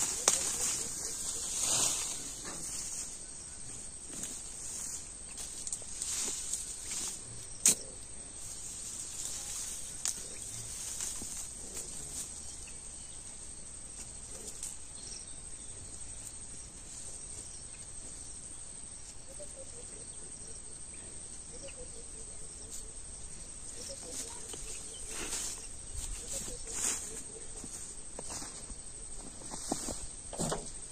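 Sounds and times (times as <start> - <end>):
high insect chirr: 0.0 - 30.9
machete chopping into soil: 7.6 - 7.9.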